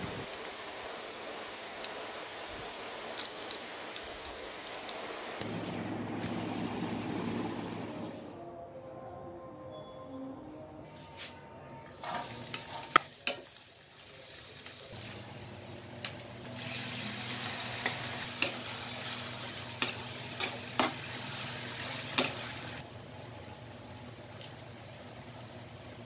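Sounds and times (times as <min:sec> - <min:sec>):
onion sizzling in hot oil: 0:12.0 - 0:26.0.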